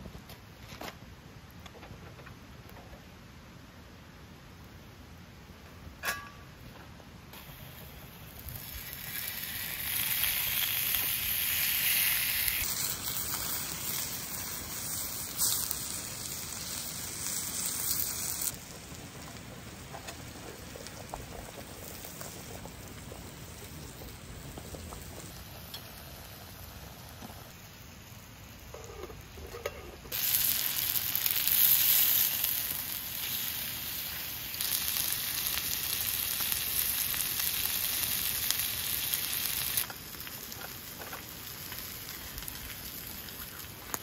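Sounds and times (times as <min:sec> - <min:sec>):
meat sizzling on hot plates: 0:07.4 - 0:44.0.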